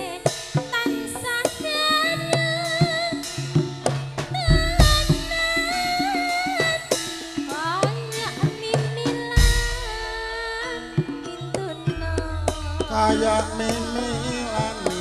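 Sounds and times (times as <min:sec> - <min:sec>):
gamelan: 0:00.0 - 0:15.0
hand drum strokes: 0:00.0 - 0:15.0
woman singing wavering vocal: 0:04.4 - 0:15.0
deep sustained low tone: 0:12.0 - 0:14.9.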